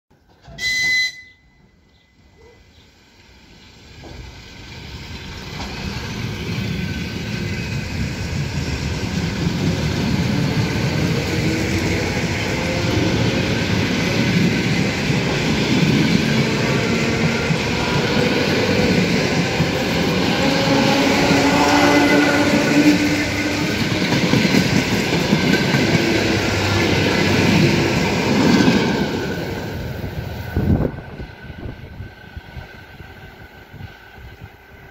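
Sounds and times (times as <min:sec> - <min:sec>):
train whistle blast: 0:00.4 - 0:02.5, 0:20.4 - 0:23.6
train wheels rumbling on rails: 0:02.9 - 0:34.9.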